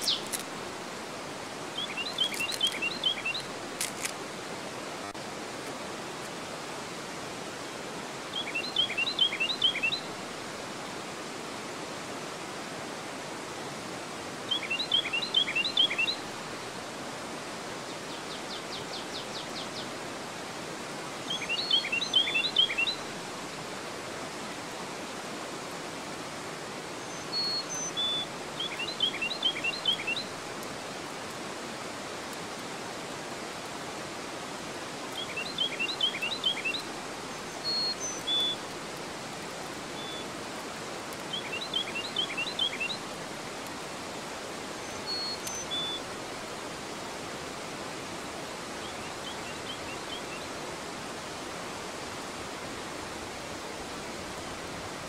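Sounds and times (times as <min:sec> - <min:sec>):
songbird singing: 0:00.0 - 0:00.6, 0:01.7 - 0:04.1, 0:08.3 - 0:10.2, 0:14.5 - 0:16.4, 0:21.2 - 0:23.1, 0:26.9 - 0:30.4, 0:35.1 - 0:39.0, 0:39.8 - 0:40.4, 0:41.0 - 0:43.2, 0:44.6 - 0:46.3, 0:48.7 - 0:50.6
river rushing over weir: 0:00.0 - 0:55.0.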